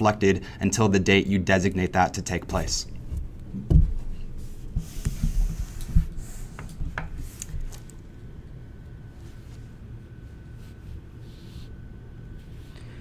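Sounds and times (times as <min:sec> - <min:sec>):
faint hum with high tone: 0:00.0 - 0:13.0
rustling near microphone: 0:02.9 - 0:08.1.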